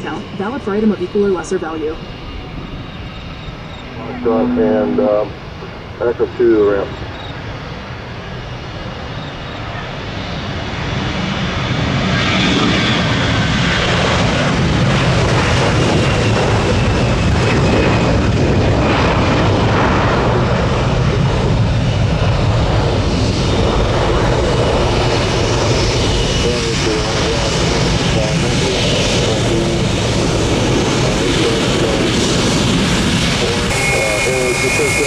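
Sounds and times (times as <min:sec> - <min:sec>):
jet engines roaring: 0:00.0 - 0:35.0.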